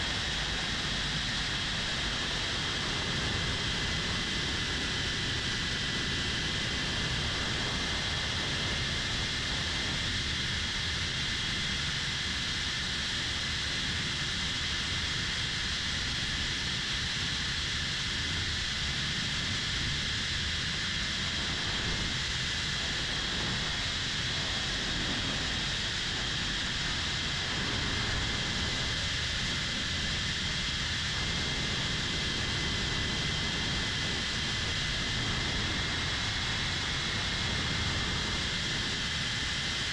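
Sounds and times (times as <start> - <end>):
rush of air: 15.6 - 39.9.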